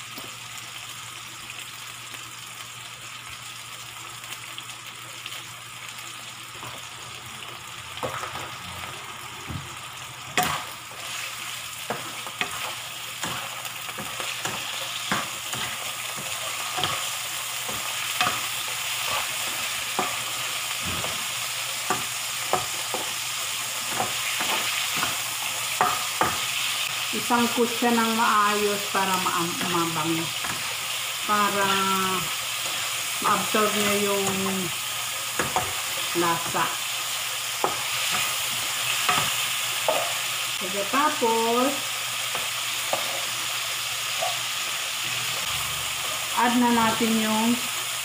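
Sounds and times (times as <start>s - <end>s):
chicken sizzling in a frying pan: 0.0s - 48.0s.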